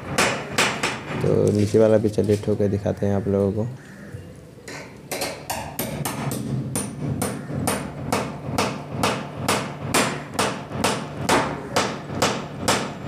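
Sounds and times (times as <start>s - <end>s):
hammer tapping metal: 4.7s - 13.0s.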